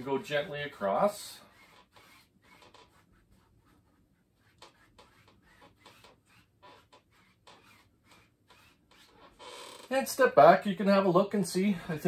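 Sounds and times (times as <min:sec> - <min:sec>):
brush swishing on canvas: 0:00.0 - 0:09.2.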